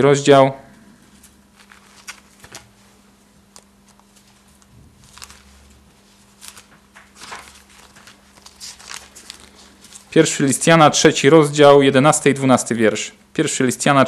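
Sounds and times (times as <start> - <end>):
faint steady hum: 0.0 - 14.0
paper pages rustling: 1.2 - 10.2.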